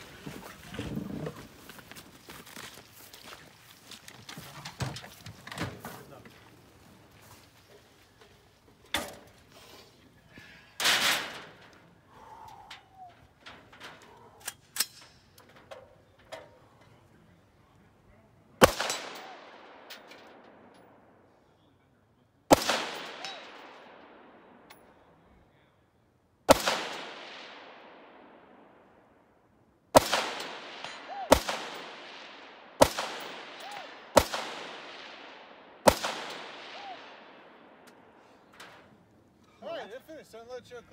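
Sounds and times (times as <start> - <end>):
rifle shots with echo: 18.6 - 21.3, 22.5 - 25.0, 26.5 - 29.2, 29.9 - 38.2.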